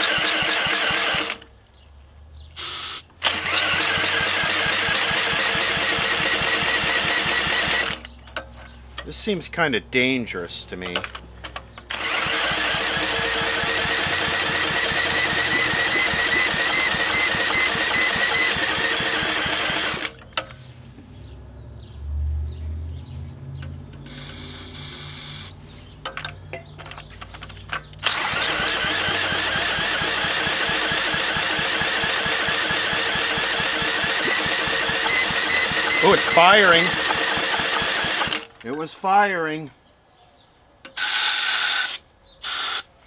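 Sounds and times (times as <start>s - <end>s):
cordless drill cranking engine: 0.0s - 1.5s, 2.6s - 8.2s, 11.9s - 20.3s, 24.1s - 25.5s, 28.0s - 38.6s, 41.0s - 42.9s
small engine firing: 0.0s - 1.5s, 2.6s - 8.1s, 11.9s - 20.2s, 24.0s - 25.6s, 28.0s - 38.5s, 41.0s - 42.9s
short hiss: 2.6s - 3.1s.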